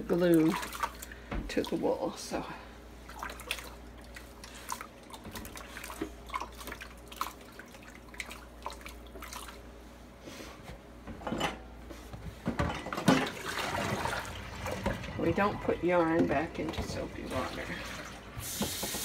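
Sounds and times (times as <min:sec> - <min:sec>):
water splashing and dripping: 0:00.2 - 0:01.9, 0:03.1 - 0:09.6.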